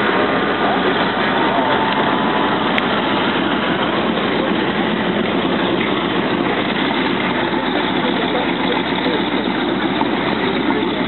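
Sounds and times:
radial aircraft engine idling: 0:00.0 - 0:11.0.

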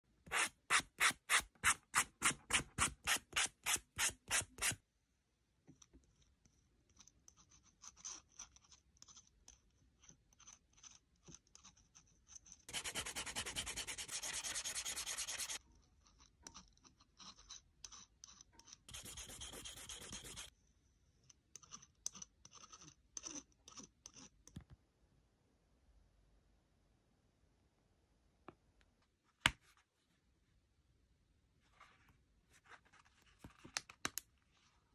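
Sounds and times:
sanding stick rubbing leather: 0:12.7 - 0:15.6, 0:18.9 - 0:20.5.

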